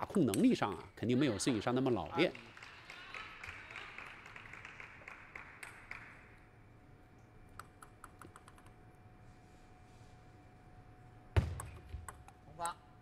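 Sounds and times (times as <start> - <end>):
faint clapping: 2.2 - 6.3
table tennis ball bouncing: 11.4 - 12.5.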